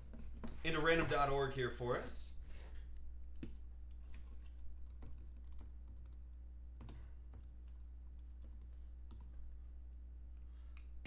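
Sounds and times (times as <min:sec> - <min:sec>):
low electrical hum: 0:00.0 - 0:11.0
keyboard typing: 0:04.5 - 0:09.4.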